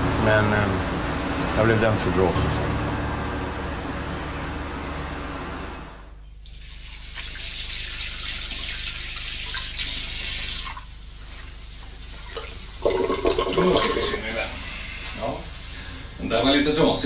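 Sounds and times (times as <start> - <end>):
loud pitched sound: 0.0 - 6.3.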